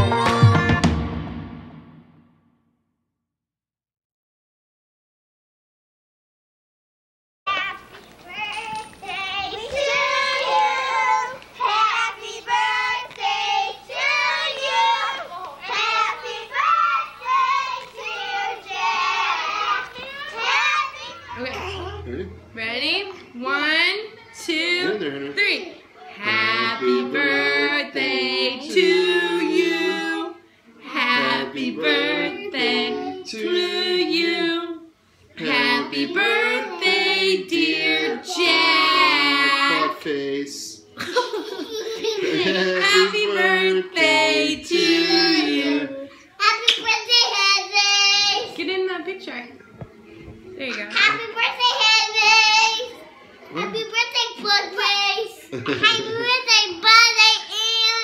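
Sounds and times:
children singing: 9.0 - 22.4, 26.2 - 34.8, 35.4 - 40.4, 42.2 - 46.2.

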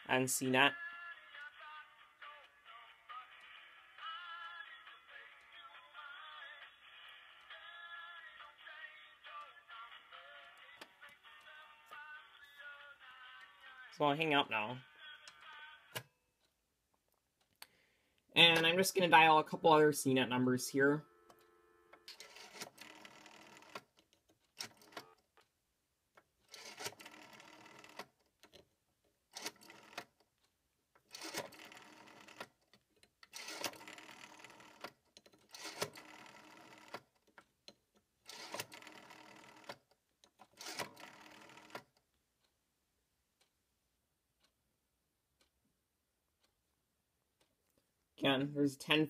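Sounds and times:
rotary dial whirring and clicking: 21.3 - 25.5, 26.2 - 28.6, 29.3 - 42.5.

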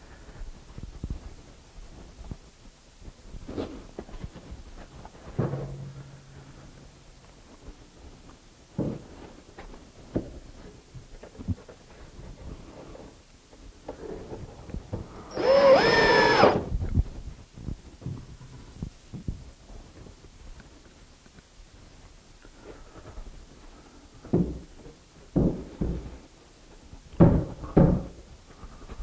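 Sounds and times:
cordless drill driving screw: 15.3 - 16.7.

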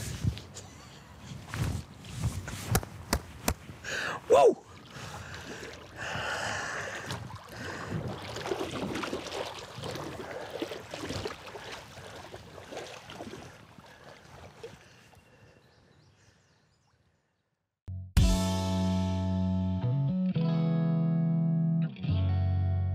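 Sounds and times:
water sloshing around legs: 4.6 - 15.4.

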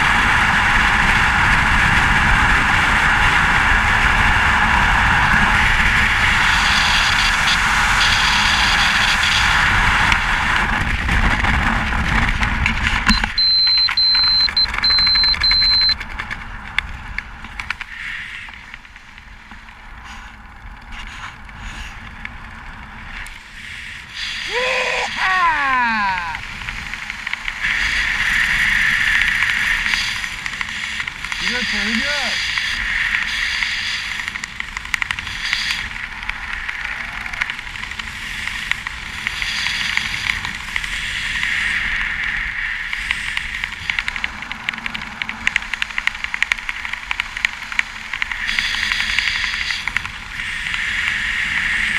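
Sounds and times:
loud wind rush: 0.0 - 51.9
wind under parachute canopy: 0.0 - 51.9
rustles and clicks: 0.1 - 24.1, 25.2 - 51.9
high beeping tone: 13.1 - 16.0.

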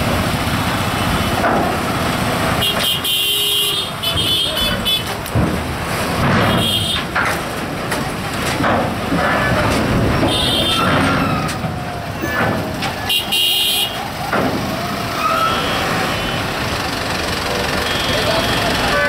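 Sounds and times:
truck and motorcycle engines: 0.0 - 19.0
voices calling: 2.5 - 5.3, 9.2 - 19.0.

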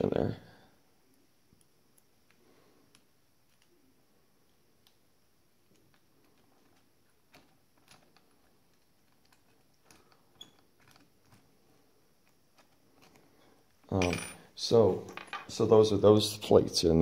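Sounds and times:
small metal parts clicking: 5.7 - 11.5.

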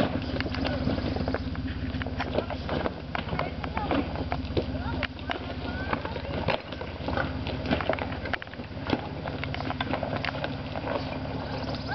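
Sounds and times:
engine idling: 0.0 - 11.9
rocks crunching under tyres: 0.0 - 11.9.

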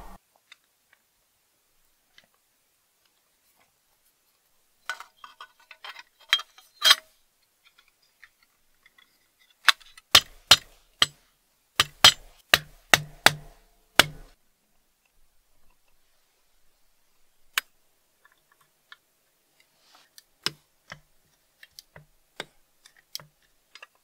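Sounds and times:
sheet metal parts clinking: 4.8 - 7.2
sharp metallic taps: 11.8 - 14.4.

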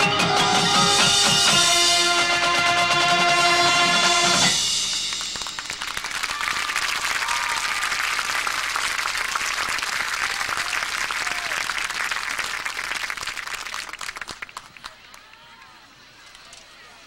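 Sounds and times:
crowd applauding: 4.8 - 15.7
faint audience calls: 5.0 - 17.0.

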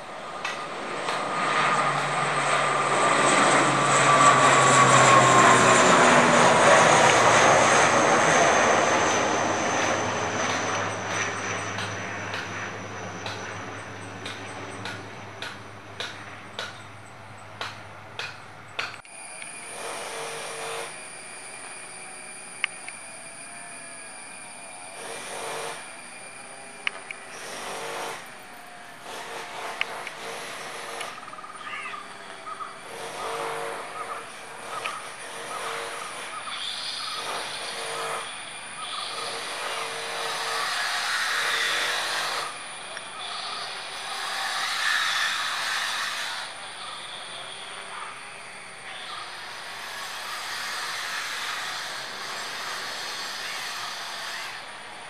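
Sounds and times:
distant jet engine hum: 0.0 - 55.0
distant turboprop plane droning: 0.0 - 55.0
high-pitched ringing: 2.1 - 14.8
hiss: 19.1 - 28.4, 29.0 - 31.8, 32.8 - 55.0.

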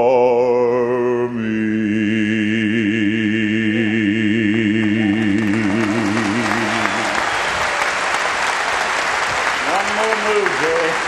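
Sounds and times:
gospel singers holding a note: 0.0 - 11.0
audience applause: 5.1 - 11.0.

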